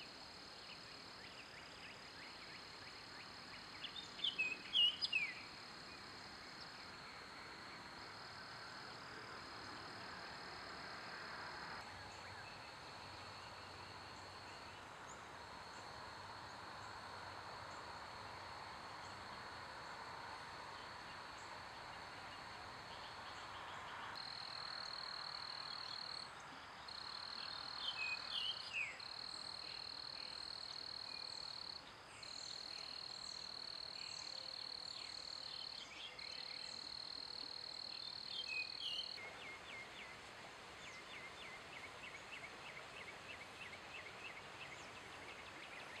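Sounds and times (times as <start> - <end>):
insects ticking chorus: 0.0 - 46.0.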